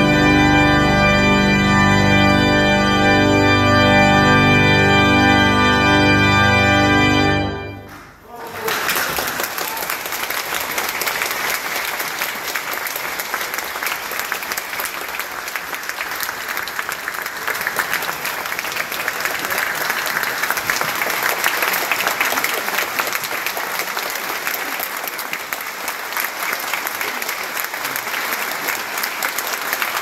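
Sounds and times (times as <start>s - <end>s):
audience applauding: 7.5s - 30.0s.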